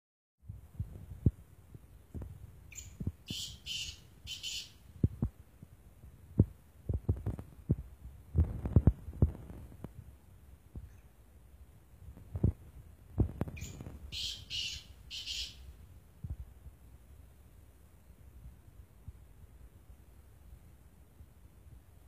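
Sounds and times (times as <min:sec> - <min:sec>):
bird harsh scratchy call: 0:02.8 - 0:04.8, 0:13.6 - 0:15.6
low thumps and knocks: 0:06.3 - 0:10.0.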